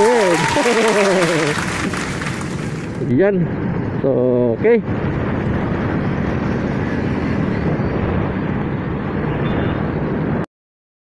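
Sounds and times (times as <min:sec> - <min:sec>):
wind rush on microphone: 0:00.0 - 0:10.5.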